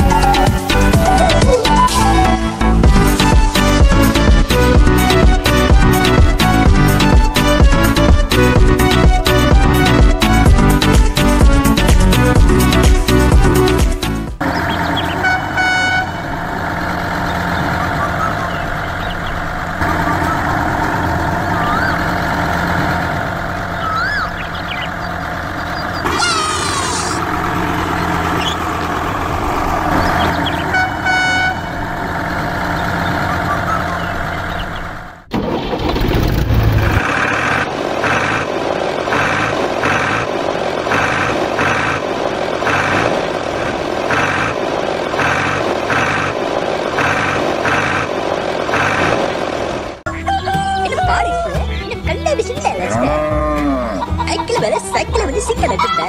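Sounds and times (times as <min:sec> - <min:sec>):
pulsing engine: 0:00.0 - 0:50.1
truck engine running: 0:00.0 - 0:56.0
truck horn toots: 0:14.4 - 0:18.8, 0:26.0 - 0:27.4, 0:30.0 - 0:32.0.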